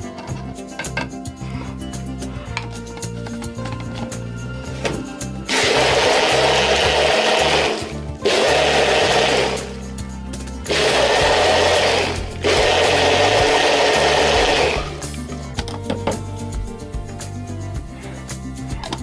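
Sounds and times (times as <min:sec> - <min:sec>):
blender running: 0:05.5 - 0:09.8, 0:10.7 - 0:15.0.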